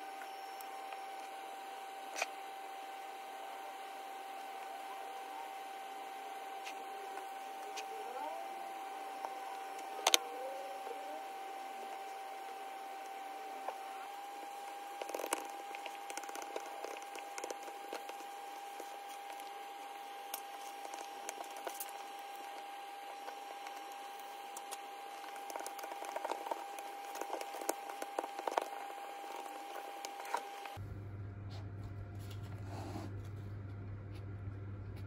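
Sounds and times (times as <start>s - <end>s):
plastic film crinkling and tapping: 11.9s - 30.8s.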